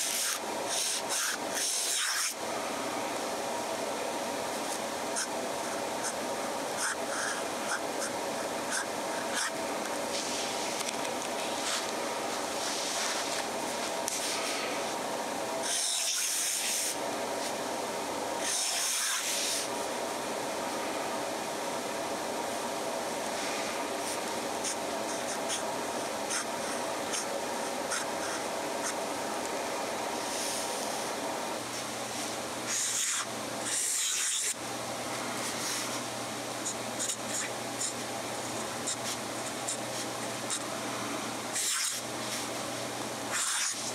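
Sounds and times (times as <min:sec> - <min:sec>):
pen nib scratching on paper: 0:00.0 - 0:02.4, 0:06.8 - 0:09.6, 0:15.6 - 0:16.9, 0:18.4 - 0:19.7, 0:24.6 - 0:25.6, 0:26.3 - 0:27.3, 0:27.9 - 0:29.0, 0:32.7 - 0:34.6, 0:36.6 - 0:40.6, 0:41.6 - 0:42.0, 0:43.3 - 0:43.9
steady background hum: 0:00.0 - 0:43.9.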